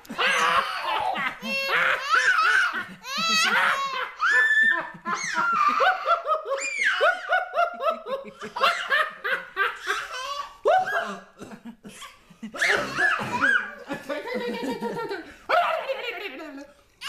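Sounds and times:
toddler laughing and squealing: 0.1 - 7.5, 9.6 - 11.1, 12.6 - 13.8
man laughing heartily: 7.3 - 9.8.

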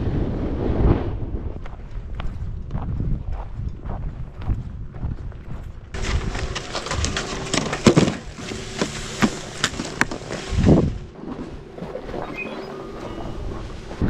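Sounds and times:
snowboard sliding over snow: 6.0 - 11.0
chairlift machinery hum: 6.0 - 14.0.

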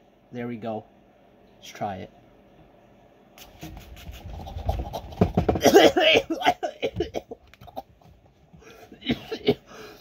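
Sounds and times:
man coughing: 5.6 - 7.4, 9.0 - 9.8.

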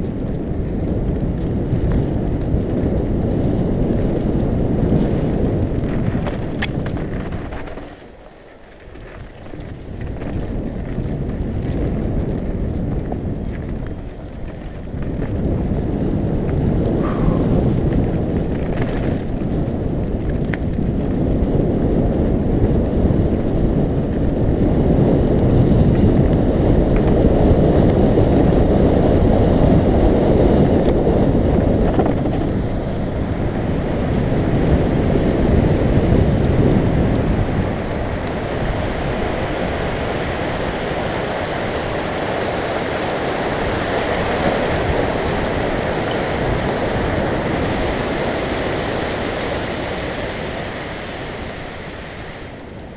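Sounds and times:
bike clicks and rattles: 0.0 - 32.8
bike tyres rumbling on dirt: 0.0 - 52.9
wind buffeting microphone: 0.0 - 52.9.

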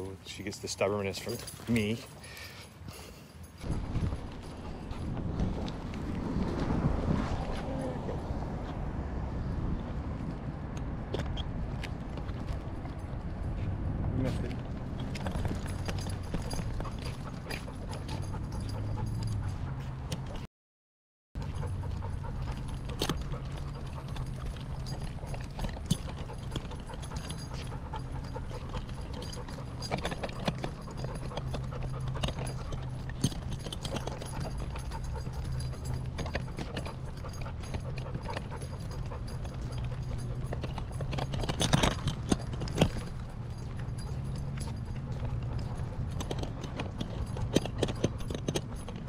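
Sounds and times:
steady low rumble: 3.6 - 19.8
dog panting: 15.1 - 20.5, 21.4 - 49.0
claws clicking on pavement: 21.4 - 49.0.

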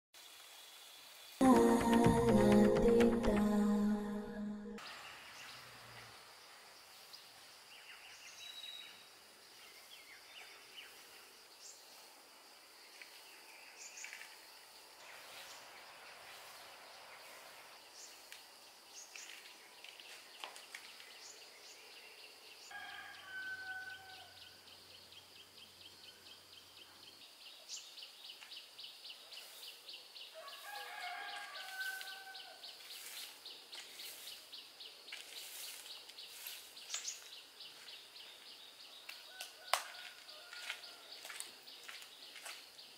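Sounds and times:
rooster crowing: 22.7 - 24.6, 30.3 - 32.6, 39.2 - 41.4.

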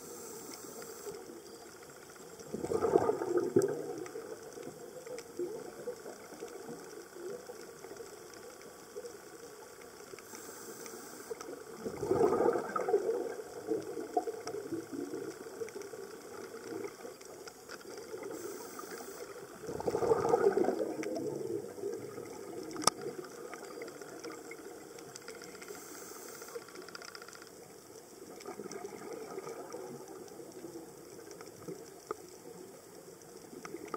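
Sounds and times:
regulator breathing underwater: 0.0 - 1.2, 10.3 - 11.4, 18.3 - 20.4, 25.6 - 26.7
exhaled air bubbling: 2.3 - 8.2, 11.2 - 25.8, 28.2 - 32.3.

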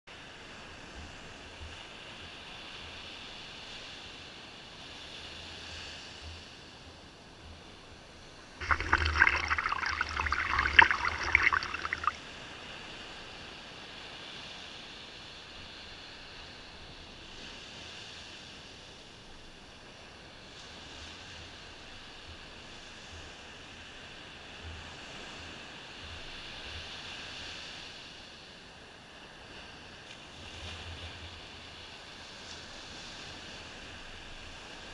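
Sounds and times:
crackling foam of wave wash: 8.6 - 12.2
waves breaking and washing in: 8.6 - 12.3.

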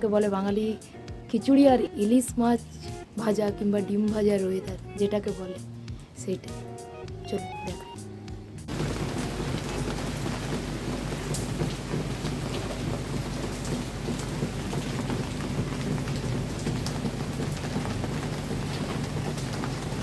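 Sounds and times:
heavy rain: 8.7 - 20.0.

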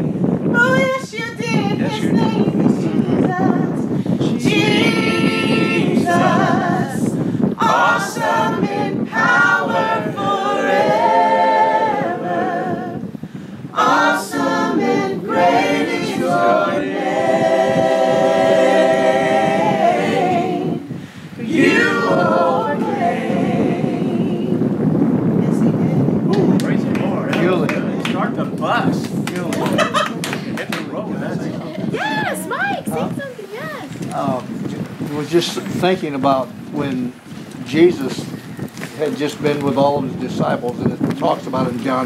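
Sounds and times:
group singing unaccompanied: 0.5 - 25.0.

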